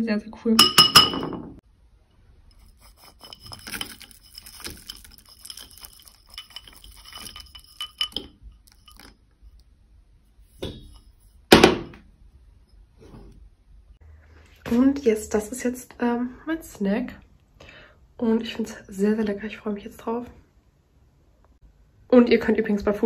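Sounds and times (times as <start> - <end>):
metal spoon scraping ceramic bowl: 2.5 - 9.3.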